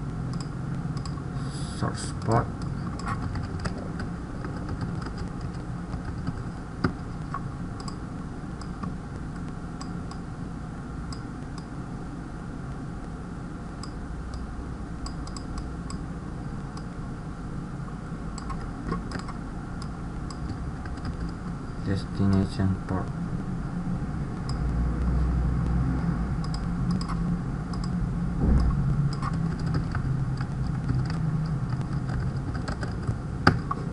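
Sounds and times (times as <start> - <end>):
steady low hum: 0.0 - 33.9
mouse clicking: 0.3 - 1.2, 4.4 - 8.0, 13.8 - 16.0, 18.4 - 21.4, 26.4 - 28.0, 28.6 - 33.7
keyboard typing: 2.2 - 8.0, 18.4 - 19.4, 20.3 - 21.4, 26.4 - 27.9, 28.6 - 33.7.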